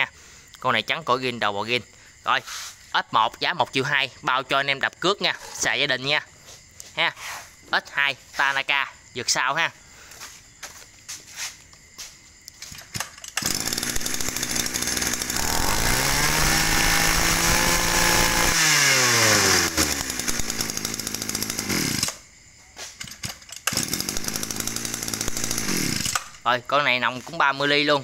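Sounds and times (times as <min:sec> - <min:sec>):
grass trimmer engine revving: 0:13.3 - 0:22.2, 0:23.3 - 0:26.5.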